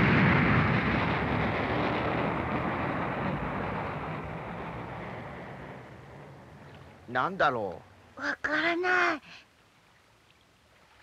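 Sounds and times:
rocket motor rushing rumble: 0.0 - 7.0.

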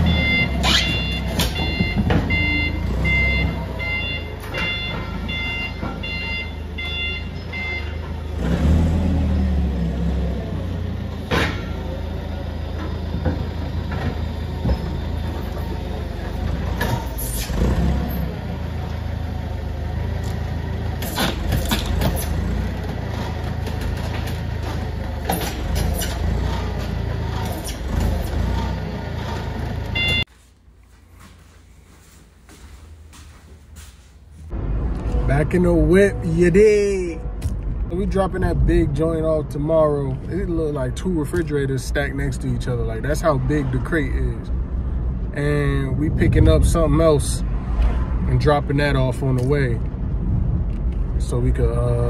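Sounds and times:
forklift warning beeper: 0.0 - 8.8, 29.9 - 30.3.

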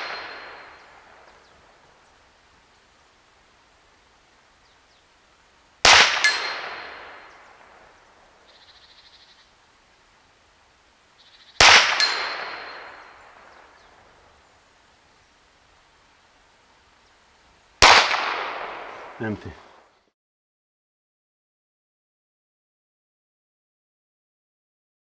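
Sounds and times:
air pistol shots: 5.8 - 7.3, 11.6 - 13.0, 17.8 - 19.2
pellet clanging metal target: 5.9 - 7.2.

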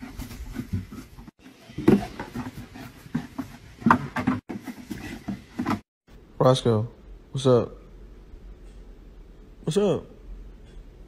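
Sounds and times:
plastic bucket bumping and scraping: 0.0 - 5.9.

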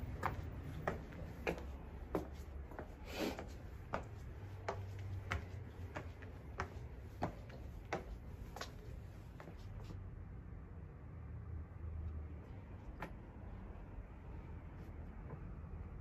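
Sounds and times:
footsteps on tiled stairs: 0.0 - 10.1, 12.4 - 13.8, 14.5 - 15.8.

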